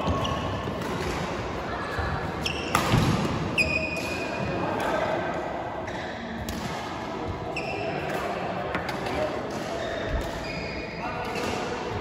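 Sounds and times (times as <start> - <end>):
murmur of voices: 0.0 - 12.0
shoe squeaks on court: 2.4 - 2.9, 3.6 - 4.2.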